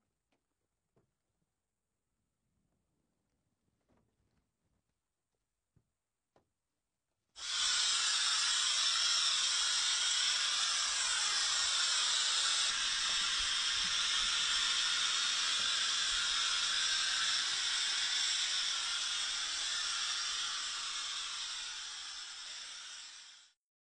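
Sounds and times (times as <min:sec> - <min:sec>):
steam cleaner hissing: 0:07.4 - 0:23.6.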